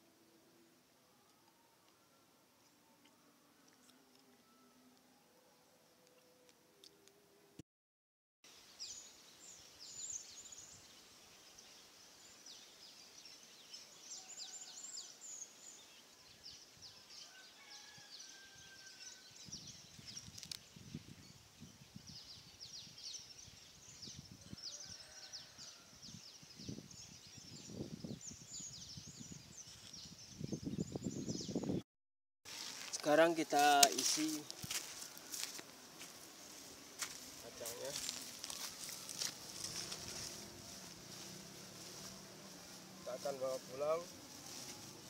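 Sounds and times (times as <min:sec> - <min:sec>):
faint whistled notes: 0:04.3 - 0:05.0
low rustling: 0:32.5 - 0:45.0.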